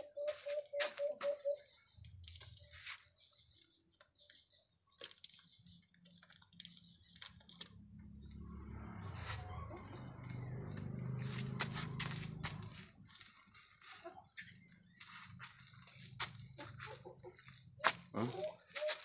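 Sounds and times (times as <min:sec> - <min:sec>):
chirps: 0:00.0 - 0:19.0
mushrooms crinkling and snapping: 0:02.0 - 0:07.8.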